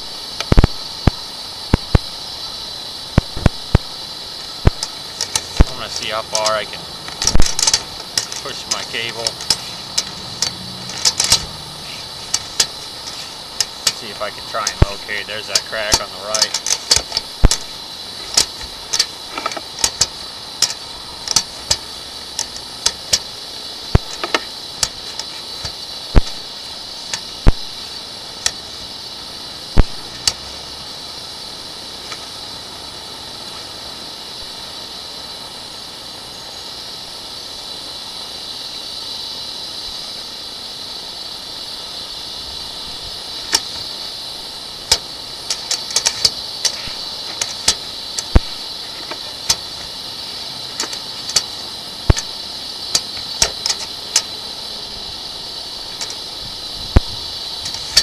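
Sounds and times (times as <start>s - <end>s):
steady hiss: 0.0s - 58.0s
cable clicking in a pipe: 6.4s - 11.5s, 12.3s - 23.3s, 43.5s - 44.0s, 44.9s - 50.0s, 50.7s - 54.4s, 56.9s - 58.0s.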